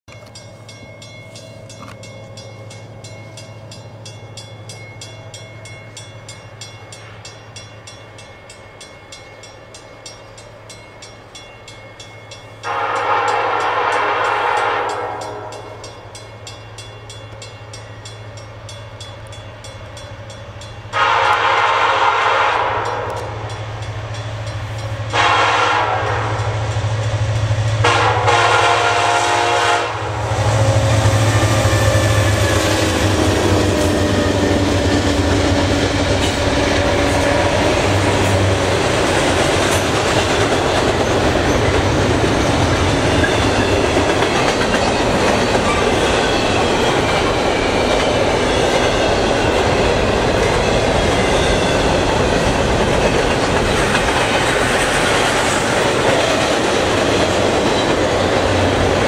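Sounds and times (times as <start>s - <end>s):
locomotive horn blasts: 12.6s - 15.8s, 20.9s - 23.5s, 25.1s - 26.8s, 27.8s - 32.6s.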